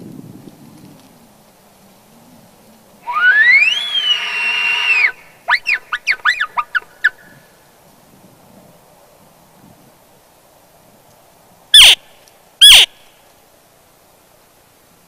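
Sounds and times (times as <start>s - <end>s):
elk call whistle and squeals: 3.0s - 7.4s, 11.8s - 12.0s, 12.6s - 13.0s.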